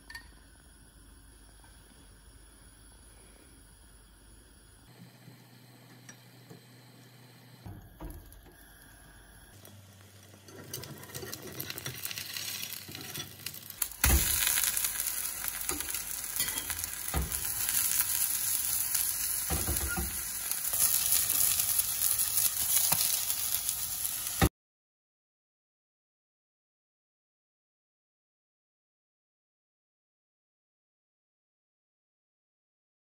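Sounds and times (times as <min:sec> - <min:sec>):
batter sizzling in pan: 0:08.0 - 0:24.5.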